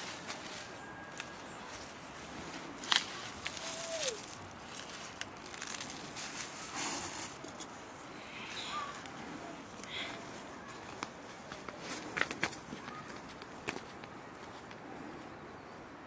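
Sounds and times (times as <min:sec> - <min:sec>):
leaves rustling: 0:00.0 - 0:14.7
stems snapping: 0:02.8 - 0:06.2.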